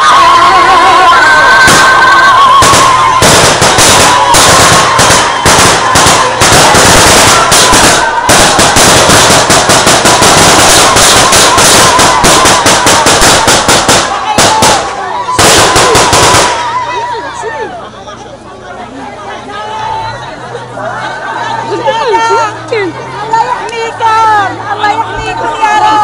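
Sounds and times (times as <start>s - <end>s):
crowd noise: 0.0s - 26.0s
gunfire shots and bursts: 2.6s - 16.6s.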